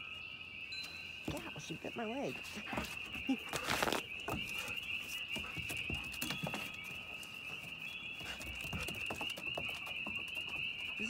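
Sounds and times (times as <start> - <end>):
dog claws tapping on wooden boards: 2.7 - 7.6, 8.2 - 11.0.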